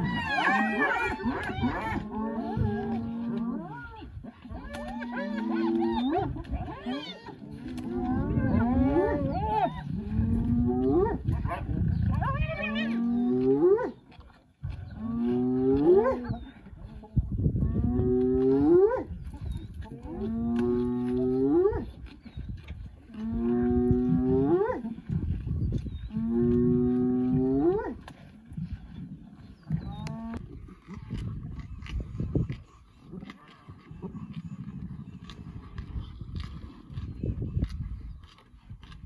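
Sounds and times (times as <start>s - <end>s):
animal bellowing: 0.0s - 14.0s
low rumble: 7.3s - 13.4s.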